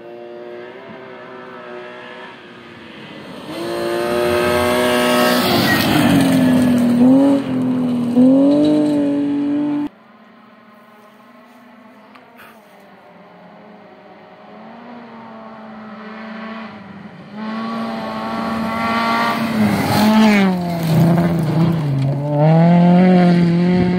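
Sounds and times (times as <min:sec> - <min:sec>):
rally car engine passing: 0:00.0 - 0:23.9
rush of gravel: 0:19.4 - 0:22.3.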